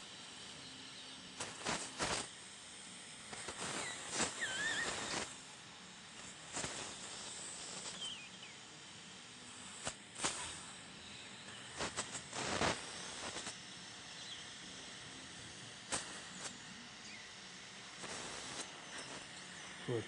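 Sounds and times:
dental suction hissing: 3.3s - 5.4s.

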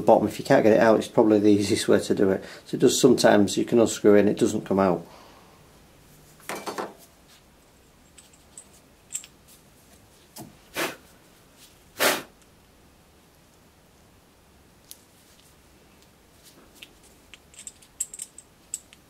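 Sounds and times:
metal parts clicking and clinking: 8.0s - 9.4s, 16.8s - 19.0s.

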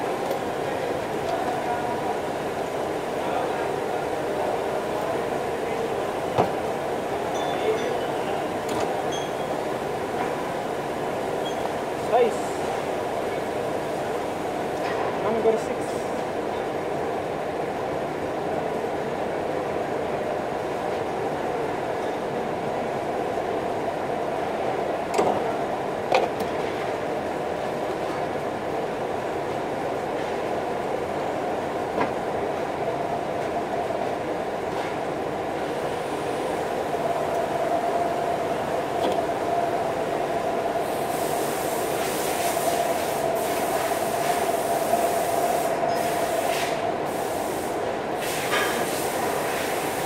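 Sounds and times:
shop noise with held tone: 4.4s - 10.3s, 37.0s - 50.0s
industrial workshop noise: 40.8s - 50.0s
welding arc hiss: 40.8s - 50.0s.

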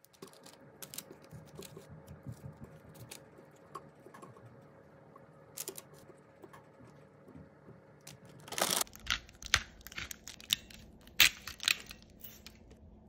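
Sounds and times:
paper crinkling: 8.2s - 12.8s.

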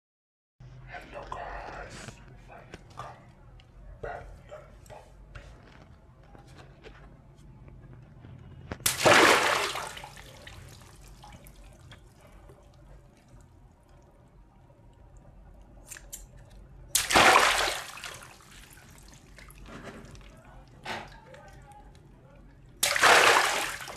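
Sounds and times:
water balloon bursting: 8.8s - 10.3s, 16.9s - 18.4s, 22.8s - 23.9s
water splashing out: 8.8s - 11.8s, 16.9s - 20.2s, 22.8s - 23.9s
water dripping: 8.8s - 23.9s.

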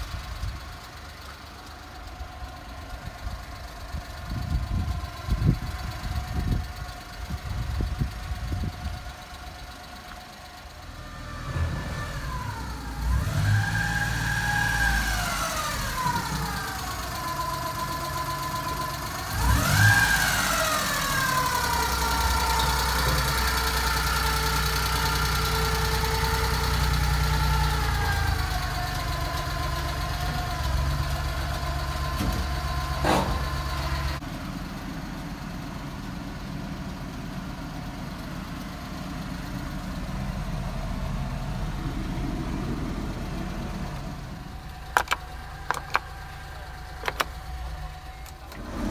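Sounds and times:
small engine revving and idling: 0.0s - 48.9s.

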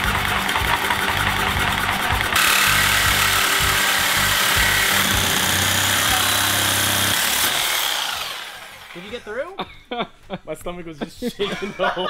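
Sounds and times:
reciprocating saw cutting metal: 0.0s - 9.2s.

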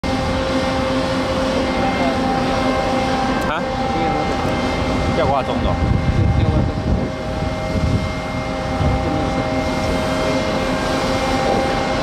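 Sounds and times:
heavy machinery drone: 0.0s - 12.0s
low rumbling: 0.0s - 12.0s.

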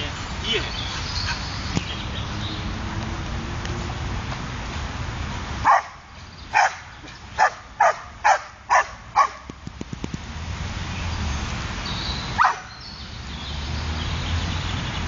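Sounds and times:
dog barking: 5.6s - 9.5s, 12.4s - 12.8s.

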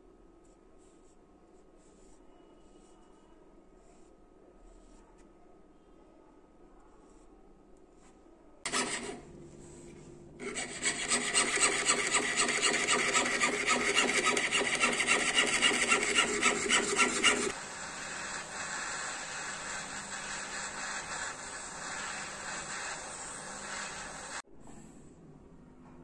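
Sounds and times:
saw rasping through metal sheet: 10.4s - 17.6s
gas torch flame hissing: 10.8s - 24.4s.

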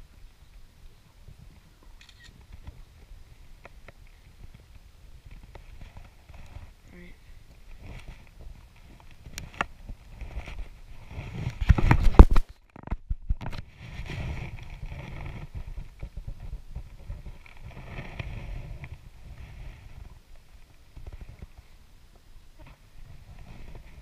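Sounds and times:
clothing rustling against camera: 7.6s - 20.1s.

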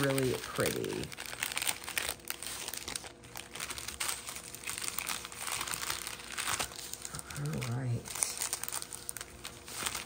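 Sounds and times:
plastic bags crinkling: 0.0s - 10.0s.

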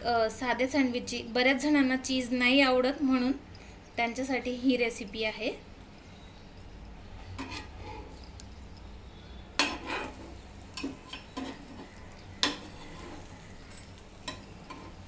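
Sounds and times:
metal spatula scraping pan: 7.2s - 8.2s, 9.6s - 15.0s
sharp clinks: 8.1s - 9.0s, 10.6s - 15.0s.

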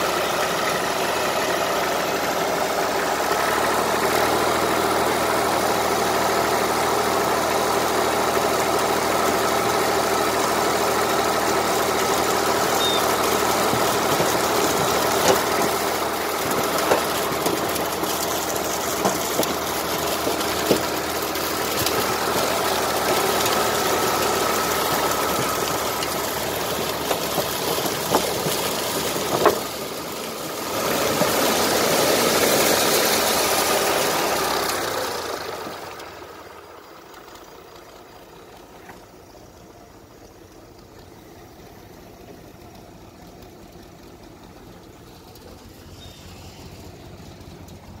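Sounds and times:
corn pouring into trailer: 0.0s - 36.7s
tractor engine running: 0.0s - 48.0s.

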